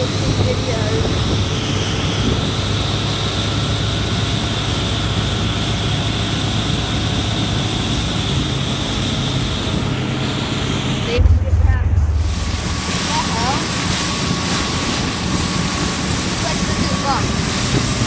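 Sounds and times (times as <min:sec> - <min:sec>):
motorboat engine running: 0:00.0 - 0:18.0
water rushing around hull: 0:00.0 - 0:18.0
wind: 0:00.0 - 0:18.0.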